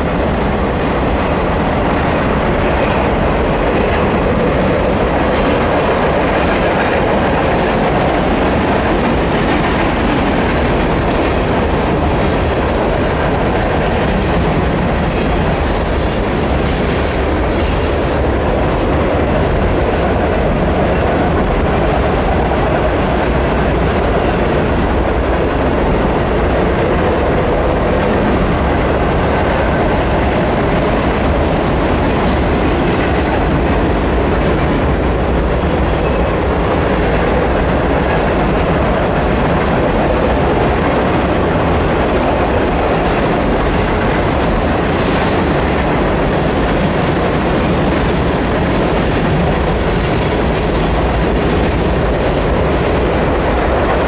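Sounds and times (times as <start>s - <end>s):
train wheels rumbling on bridge: 0.0s - 54.0s
high wheel squeals: 15.2s - 18.2s, 35.2s - 36.8s.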